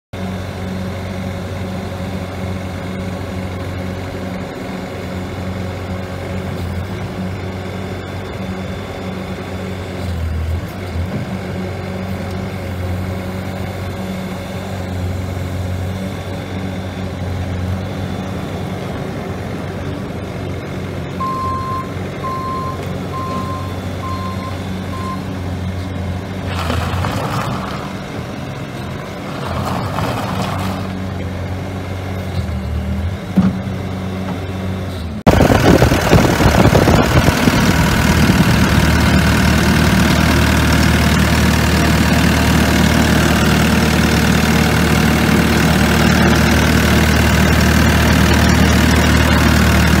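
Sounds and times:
diesel engine running: 0:00.2 - 0:50.0
faint backup alarm beeps: 0:21.2 - 0:25.3.

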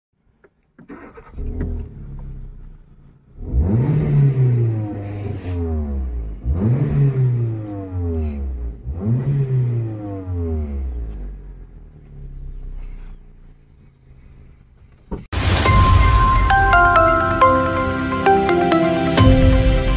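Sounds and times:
car engine revving: 0:00.9 - 0:19.9
loud exhaust: 0:02.7 - 0:11.8, 0:15.4 - 0:19.9.

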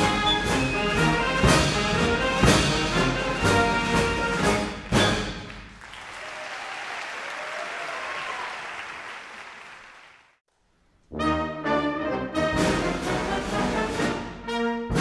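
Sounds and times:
orchestral music with brass: 0:00.0 - 0:05.7, 0:11.1 - 0:15.0
applause: 0:04.6 - 0:10.4.

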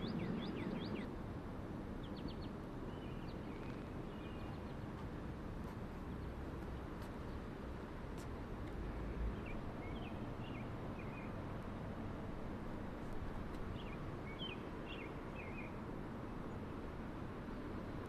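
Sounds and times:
songbird chirping: 0:00.0 - 0:01.1, 0:02.0 - 0:07.6, 0:08.2 - 0:11.5, 0:13.5 - 0:15.8.

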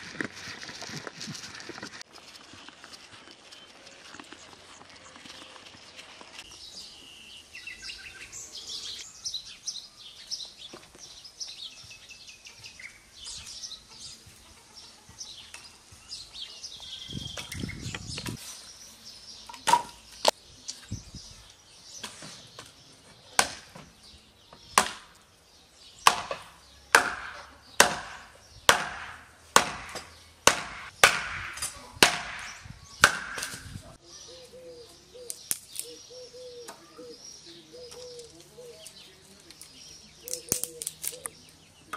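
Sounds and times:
birds chirping: 0:00.0 - 0:41.9
axe chopping firewood: 0:19.6 - 0:20.0, 0:22.0 - 0:23.9, 0:24.7 - 0:25.2, 0:26.0 - 0:33.8.

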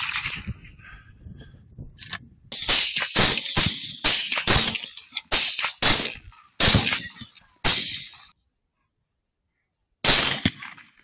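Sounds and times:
rifle shots: 0:02.6 - 0:08.2, 0:10.0 - 0:11.0.

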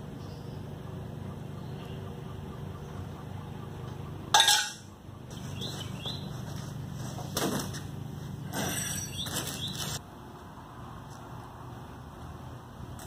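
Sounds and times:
cardboard rustling and flapping: 0:06.3 - 0:07.9.

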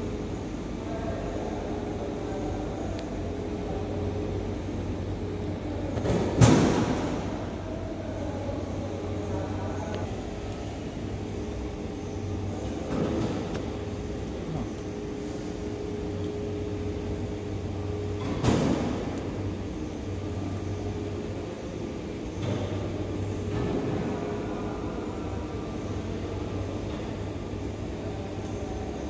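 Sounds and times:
machine hum: 0:00.0 - 0:29.0.

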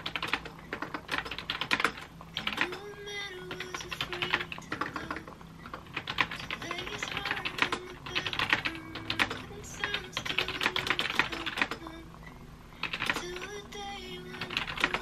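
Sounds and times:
fast typing on laptop keyboard: 0:00.0 - 0:02.8, 0:03.5 - 0:05.2, 0:05.8 - 0:11.8, 0:12.8 - 0:13.5, 0:14.4 - 0:15.0.

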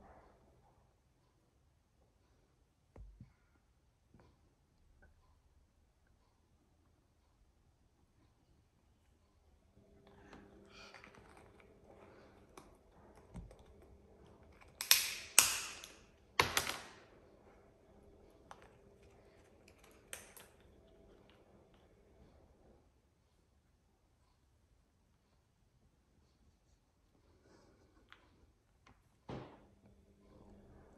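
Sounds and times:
parrot cracking a walnut shell: 0:10.7 - 0:17.0, 0:18.5 - 0:21.0.

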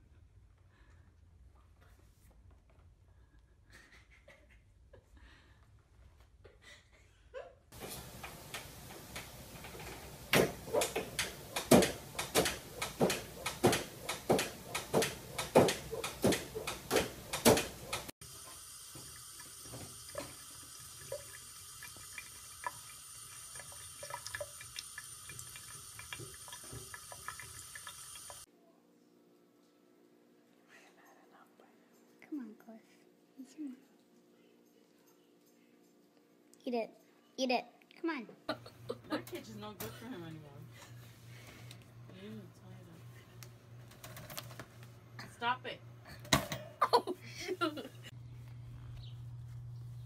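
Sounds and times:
tap running into a sink: 0:18.4 - 0:28.4.

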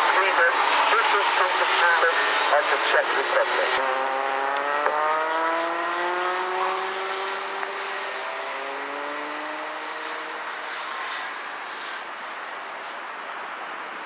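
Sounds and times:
kart engines running at low revs: 0:00.0 - 0:11.0.

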